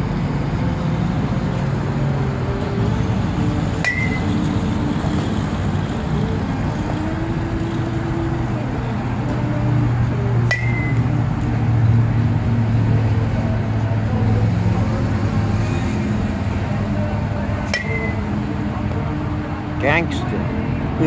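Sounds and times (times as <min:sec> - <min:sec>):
metal bat pinging softball: 0:03.8 - 0:04.4, 0:10.4 - 0:11.2, 0:17.6 - 0:18.4.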